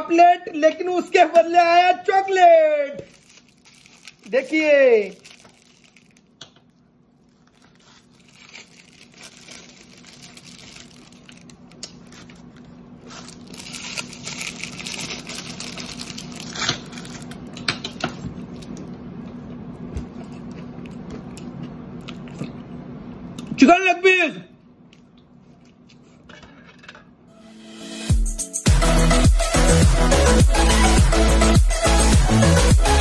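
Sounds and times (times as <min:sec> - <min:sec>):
chocolate wrappers crinkling: 0:02.2 - 0:18.6.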